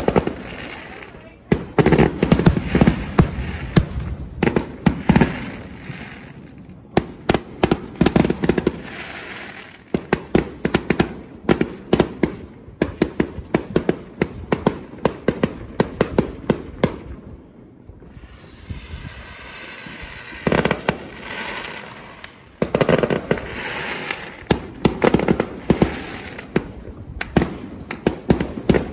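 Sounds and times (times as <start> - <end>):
fireworks bursting: 0.0 - 28.9.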